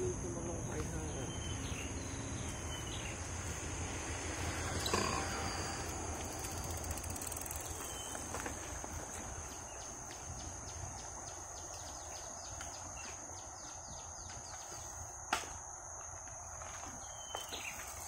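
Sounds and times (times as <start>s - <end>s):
high-pitched insect drone: 0.0s - 8.5s.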